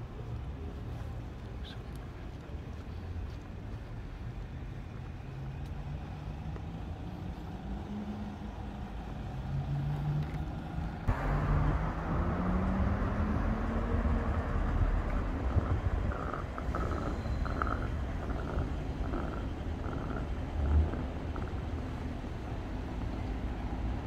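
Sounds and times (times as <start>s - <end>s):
city street traffic noise: 0.0s - 24.0s
vehicle engine rising in pitch: 11.1s - 22.3s.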